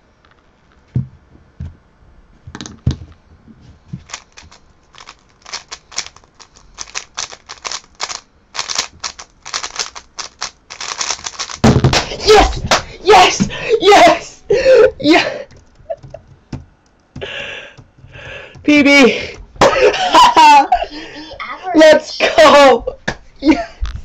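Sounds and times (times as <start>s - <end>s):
plastic cube clicking: 4.0s - 12.1s, 15.5s - 17.1s
low thumps: 11.5s - 13.6s.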